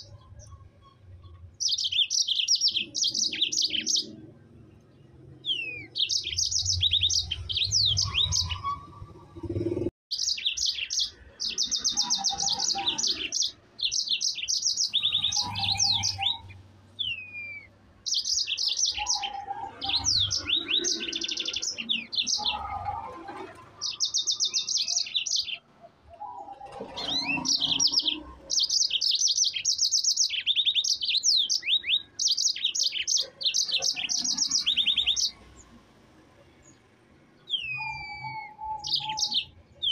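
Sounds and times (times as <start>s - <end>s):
canary singing trills: 0.0s - 35.8s, 36.4s - 39.9s.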